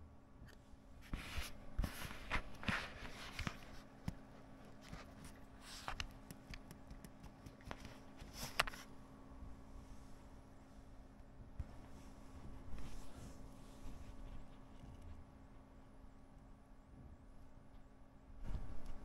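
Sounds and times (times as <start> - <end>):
plastic sheets rustling and crinkling: 1.0 - 6.0.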